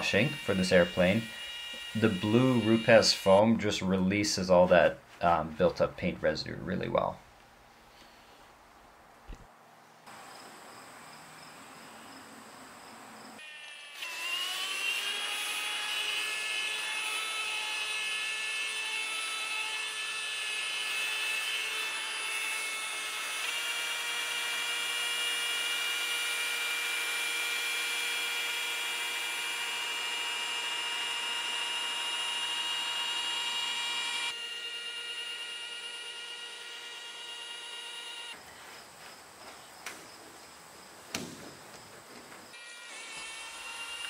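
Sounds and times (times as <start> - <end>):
rotary polisher whining: 0.0 - 4.8, 13.4 - 38.4, 42.4 - 44.0.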